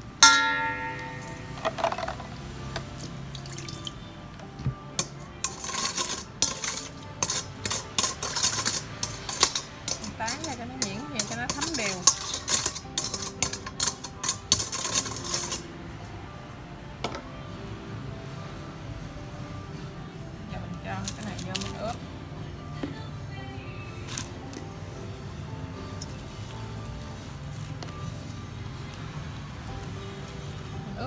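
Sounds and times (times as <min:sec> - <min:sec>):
metal spoon clinking in a bowl: 0:00.2 - 0:02.3, 0:05.0 - 0:15.6.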